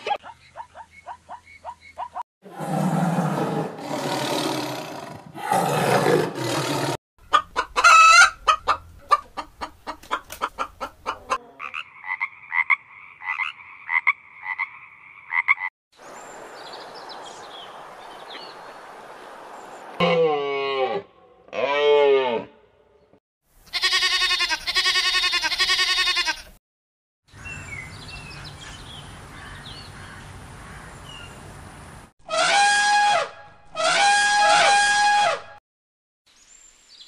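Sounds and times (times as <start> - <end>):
tiger roaring and growling: 2.4 - 7.0
frog calling: 11.6 - 15.7
farm animal calling: 23.7 - 26.5.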